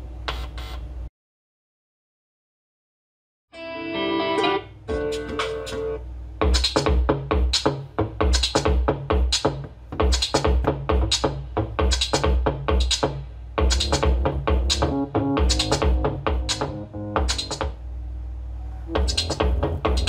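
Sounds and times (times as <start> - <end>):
electronic music with heavy bass: 6.4 - 17.7, 18.9 - 20.0.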